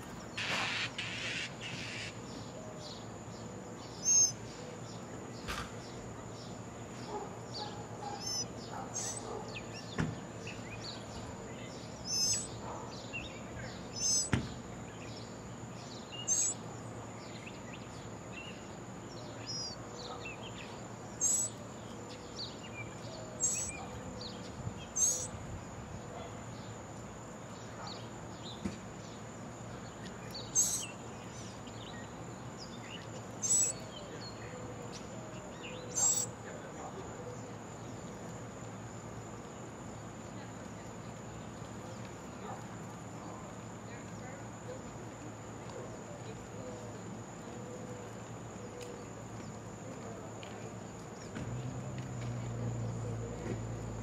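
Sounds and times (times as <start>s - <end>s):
outdoor background hiss: 0.0s - 54.0s
high bird chirps: 4.0s - 4.4s, 8.1s - 9.9s, 12.0s - 12.6s, 13.9s - 14.4s, 16.2s - 16.6s, 21.2s - 21.5s, 23.4s - 23.8s, 24.9s - 25.3s, 30.4s - 31.0s, 33.0s - 33.8s, 35.9s - 36.3s.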